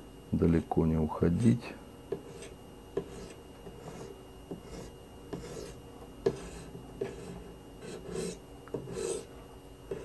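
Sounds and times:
sharpening stone scraping knife: 0:06.4 - 0:09.3.

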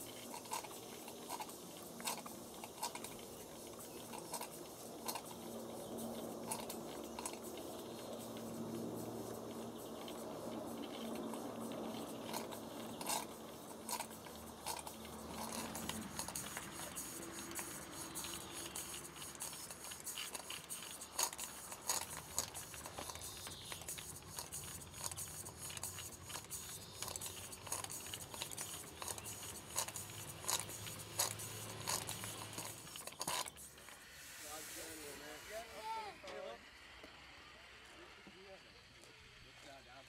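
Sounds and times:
low hum: 0:00.0 - 0:20.4
steam engine clicking and ticking: 0:00.0 - 0:36.2.

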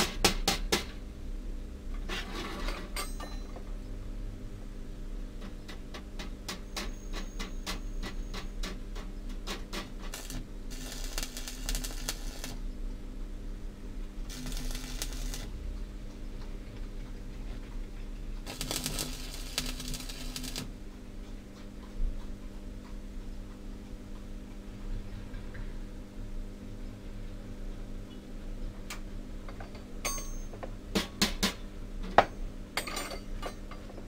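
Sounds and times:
steady electrical hum: 0:00.0 - 0:34.0
arc welding crackling hiss: 0:09.5 - 0:12.6, 0:14.3 - 0:15.6, 0:18.4 - 0:20.7.

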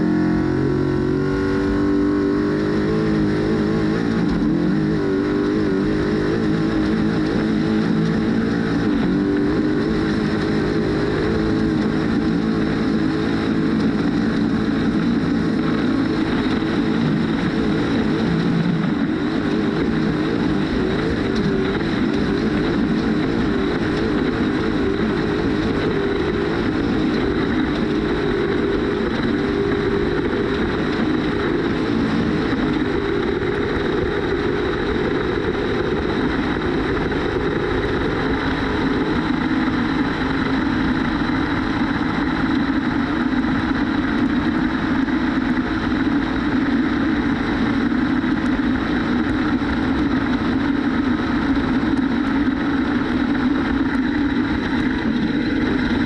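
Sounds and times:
continuous rushing noise: 0:00.0 - 0:56.0
truck engine running: 0:00.0 - 0:56.0.

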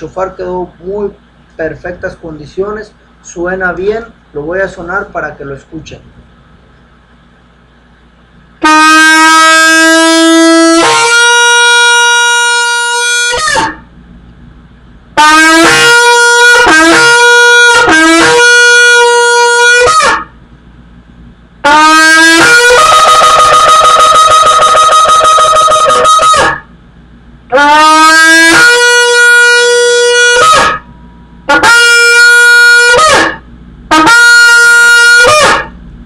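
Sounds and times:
shofar horn blasts: 0:08.6 - 0:13.9, 0:15.2 - 0:20.4, 0:21.6 - 0:26.7, 0:27.5 - 0:35.8.

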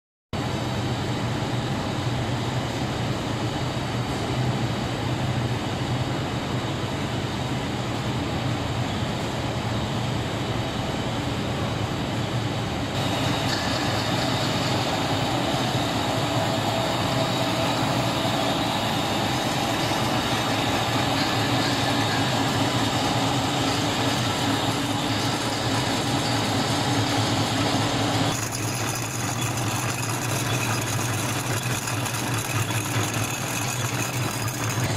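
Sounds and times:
fan noise: 0:00.4 - 0:34.9
extruder machine drone: 0:12.9 - 0:34.9.

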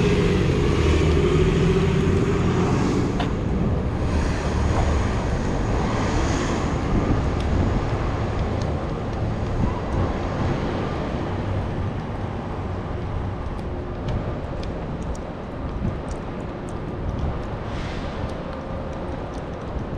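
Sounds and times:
distant traffic rumble: 0:00.0 - 0:19.9
wind noise on microphone: 0:00.0 - 0:19.9
faint high ticks: 0:13.4 - 0:19.9.

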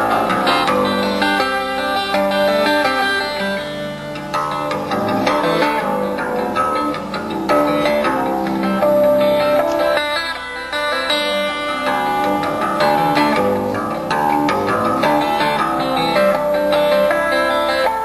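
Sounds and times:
harp guitar fingerstyle: 0:00.0 - 0:18.0.

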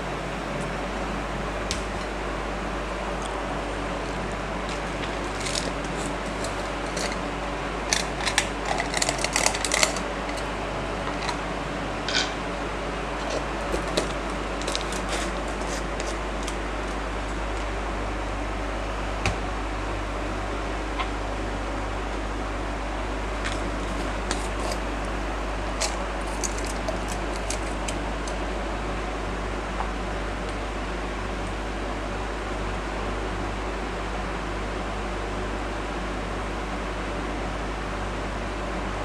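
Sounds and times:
cooling fan hum: 0:00.0 - 0:39.0.

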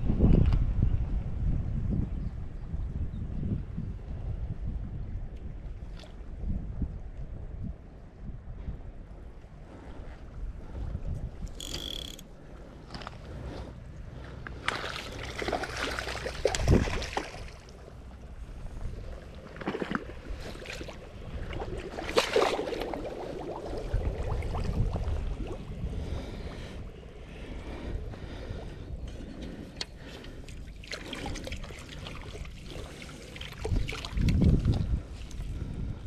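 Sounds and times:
wind rumble on microphone: 0:00.0 - 0:36.0
fish splashing in water: 0:14.6 - 0:17.8, 0:21.6 - 0:25.6.

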